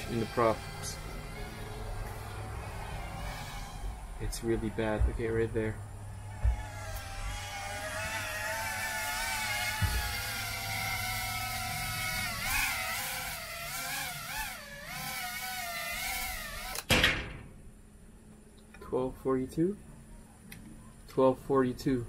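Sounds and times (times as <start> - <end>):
drone motors whining: 0.0 - 16.9.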